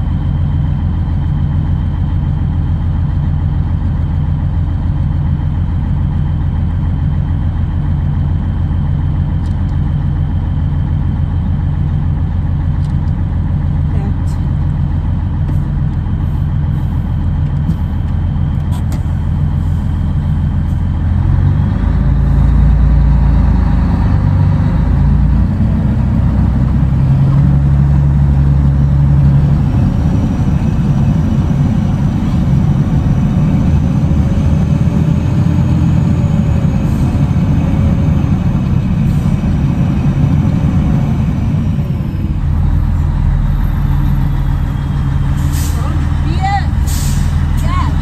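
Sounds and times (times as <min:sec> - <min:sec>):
truck diesel engine droning: 0:00.0 - 0:48.0.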